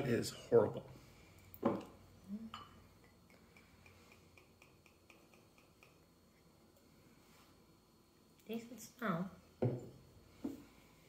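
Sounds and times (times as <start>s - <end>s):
glass knocking on wooden table: 1.6s - 1.9s, 9.6s - 10.6s.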